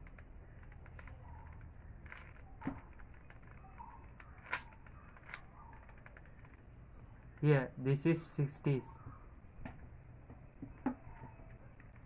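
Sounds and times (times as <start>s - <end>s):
plastic puzzle cube clicking: 0.0s - 6.6s.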